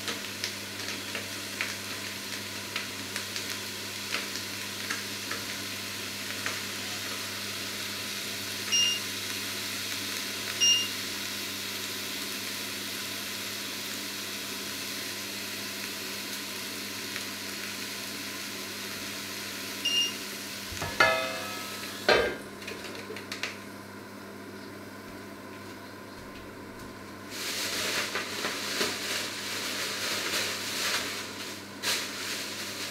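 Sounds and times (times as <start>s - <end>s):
steak sizzling in a pan: 0.0s - 22.5s, 26.8s - 32.9s
short electronic beeps: 8.7s - 9.0s, 10.6s - 10.9s, 19.9s - 20.2s
metal lid clattering on pan: 20.8s - 22.4s.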